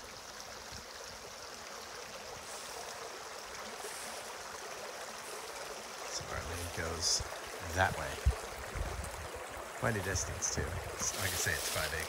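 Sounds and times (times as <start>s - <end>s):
creek running: 0.0s - 12.0s.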